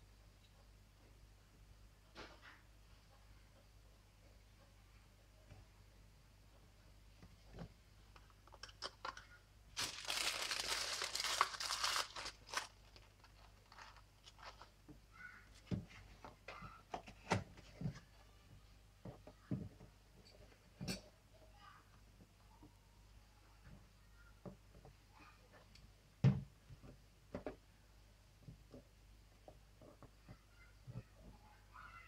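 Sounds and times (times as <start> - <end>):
paper and cardboard crinkling: 9.8 - 14.8.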